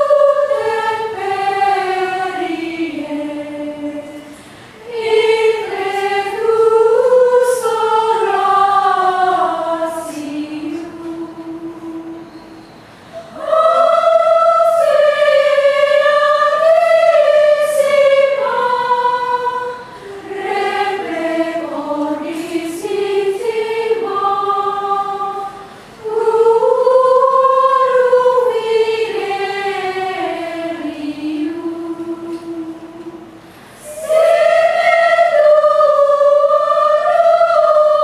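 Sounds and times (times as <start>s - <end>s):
women's choir chanting unaccompanied: 0.0s - 38.0s
singers breathing: 4.2s - 4.8s, 19.8s - 20.3s, 25.4s - 26.0s, 33.4s - 33.9s.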